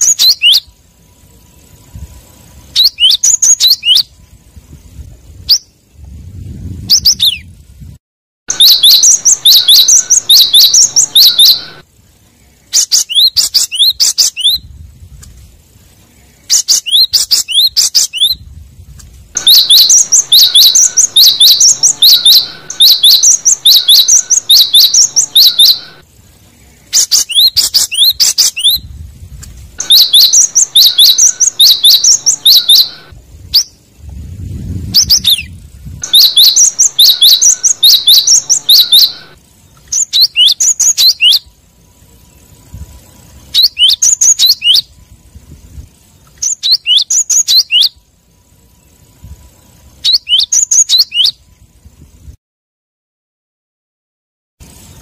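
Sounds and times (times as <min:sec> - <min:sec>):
bird singing sharp high notes: 0:00.0 - 0:00.7, 0:02.7 - 0:04.1, 0:08.5 - 0:11.8, 0:19.4 - 0:26.0, 0:29.8 - 0:33.8, 0:35.0 - 0:41.5.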